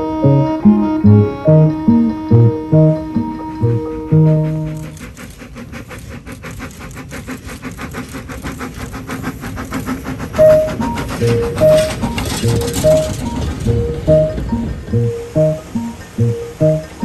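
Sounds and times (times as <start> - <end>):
background music: 0.0 - 4.9, 10.4 - 17.0
steam locomotive passing: 0.0 - 17.0.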